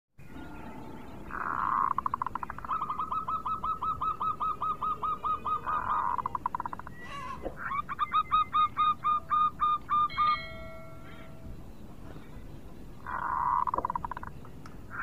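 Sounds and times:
dove cooing: 1.3 - 10.3
bird rolling trill: 13.0 - 14.4.

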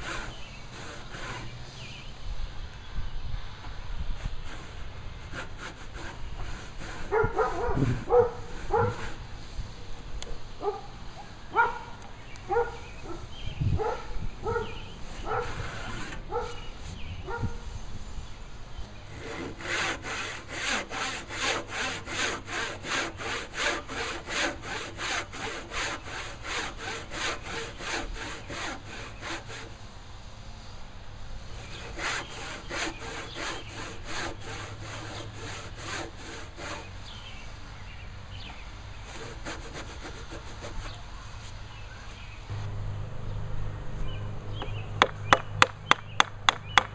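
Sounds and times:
hand saw cutting wood: 0.0 - 2.0, 4.2 - 9.3, 13.8 - 17.0, 19.0 - 29.8, 31.5 - 37.3, 39.0 - 41.0.

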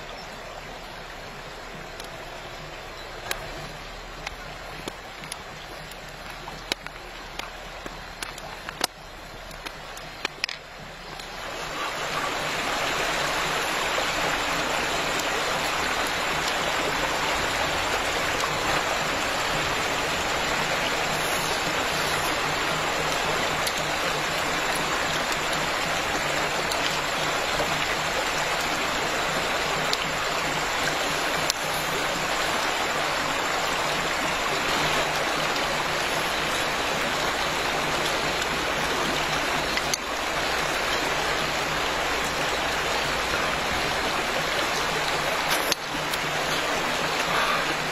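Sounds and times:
river rushing over rocks: 0.0 - 47.9
faint clicks: 1.7 - 12.3, 20.6 - 28.8, 29.8 - 33.1, 44.4 - 47.9.

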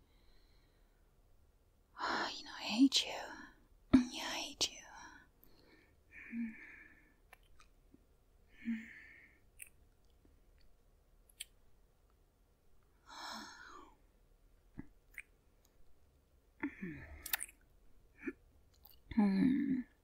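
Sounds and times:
mouth clicks and lip smacks: 7.3 - 7.8, 9.5 - 10.7, 11.3 - 11.6, 14.7 - 15.8, 17.2 - 17.7, 18.7 - 19.1
woman low murmurs: 19.1 - 20.0.

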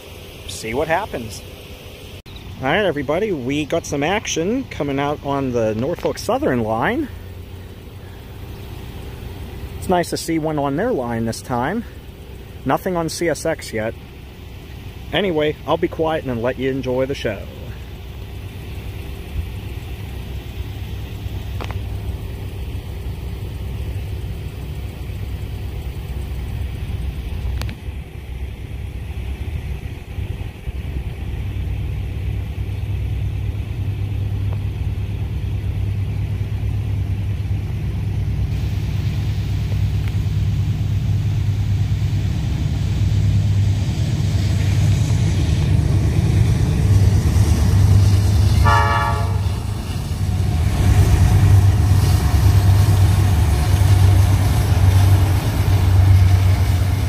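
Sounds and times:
diesel locomotive rumble: 0.0 - 57.0
train horn: 48.4 - 50.0.

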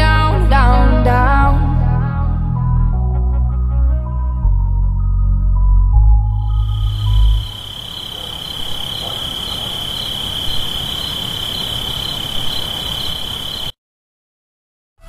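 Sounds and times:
high-pitched trill: 6.4 - 7.6.

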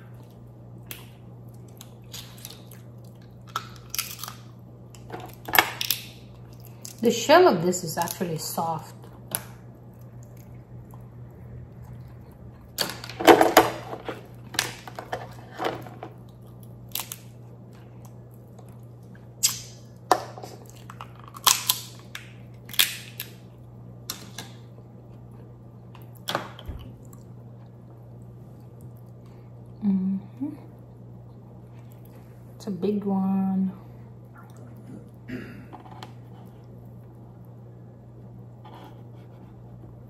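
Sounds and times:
crab shell cracking: 0.8 - 7.0, 16.3 - 17.4, 20.7 - 23.5
chewing and mouth clicks: 34.3 - 35.2.

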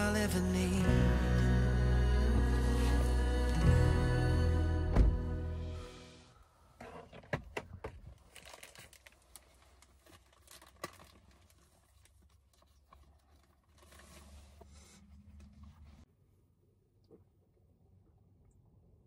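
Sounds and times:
plastic packaging crinkling: 8.1 - 14.4.

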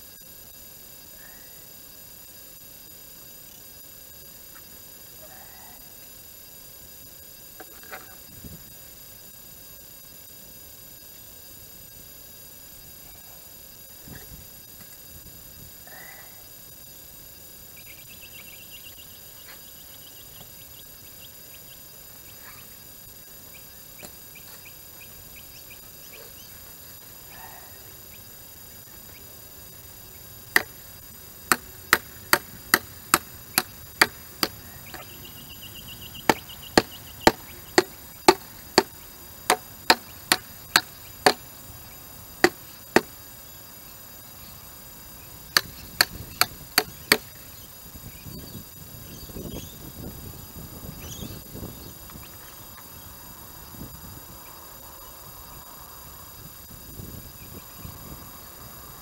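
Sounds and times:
sharp hammer blows: 36.2 - 41.4.

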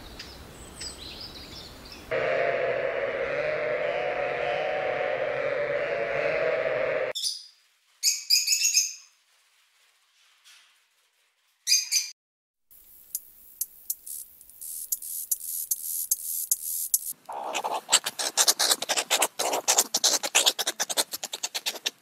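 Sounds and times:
drawn-out bleat: 2.1 - 7.2
dry scratching clicks: 13.9 - 22.0.

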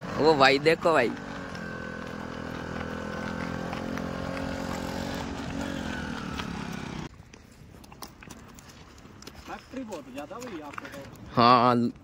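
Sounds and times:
vehicle engine running: 0.0 - 7.1.

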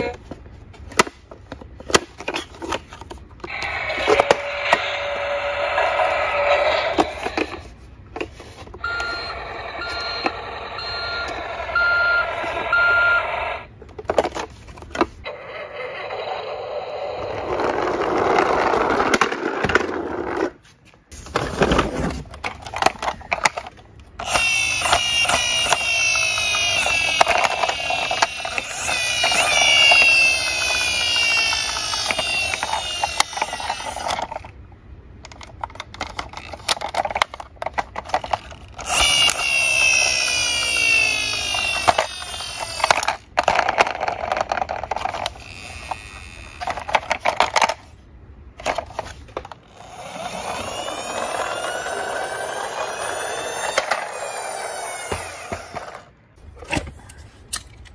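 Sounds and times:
plastic toys clattering: 0.0 - 4.9, 6.9 - 9.3, 13.8 - 15.2, 17.4 - 20.6, 21.2 - 48.0, 48.6 - 57.9
toy electronic siren wailing: 3.5 - 7.6, 8.8 - 13.7, 24.2 - 34.4, 38.8 - 43.2, 45.0 - 46.9, 49.7 - 56.0
toy beeping tones: 8.8 - 13.7.

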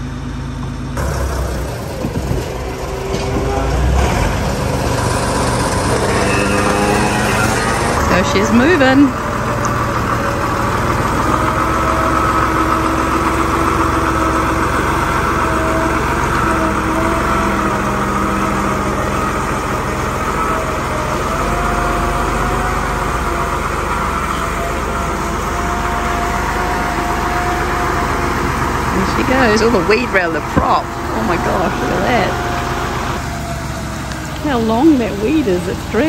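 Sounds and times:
machinery engine whining: 0.0 - 36.0.

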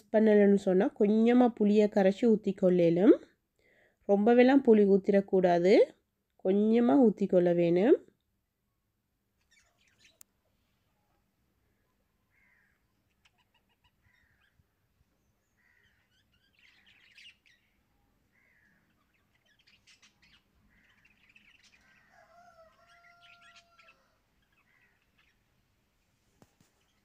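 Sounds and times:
faint birds chirping: 0.0 - 27.0.

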